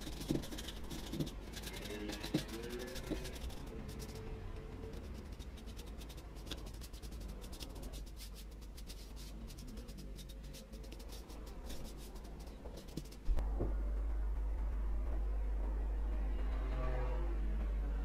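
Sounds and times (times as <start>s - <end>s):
brush dabbing in tin: 0.0s - 13.2s
paintbrush strokes on wood: 0.0s - 13.4s.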